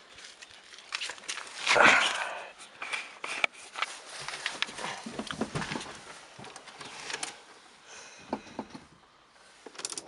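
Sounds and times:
faint clicks and rustles: 2.6s - 10.0s.

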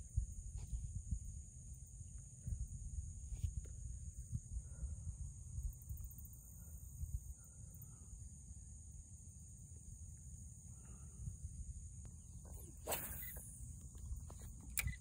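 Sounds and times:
wind rumbling on microphone: 0.0s - 8.0s, 10.7s - 15.0s
high-pitched insect drone: 5.5s - 15.0s.

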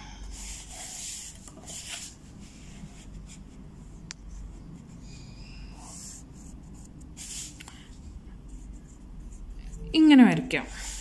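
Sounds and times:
pencil scratching on paper: 5.7s - 7.6s.

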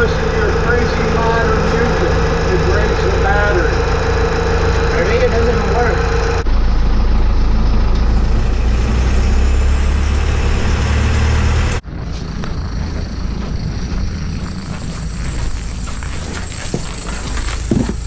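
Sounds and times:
van engine and road noise: 0.0s - 18.0s
footsteps on snowy sidewalk: 11.8s - 18.0s.

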